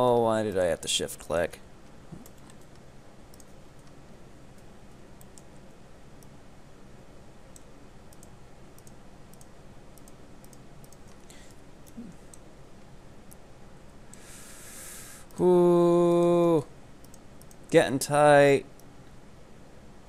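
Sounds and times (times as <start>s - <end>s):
low steady hum: 0.0s - 20.0s
computer mouse clicks: 1.8s - 6.4s, 7.5s - 12.5s, 17.0s - 17.7s
rush of breath: 14.2s - 15.3s.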